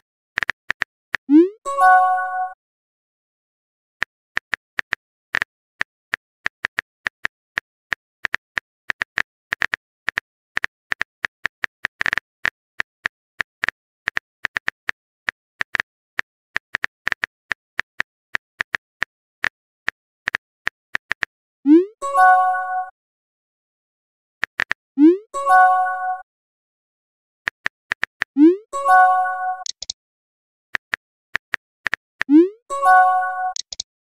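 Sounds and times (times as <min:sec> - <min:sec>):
phone keyboard typing clicks: 0:29.0 - 0:30.0, 0:33.0 - 0:33.8.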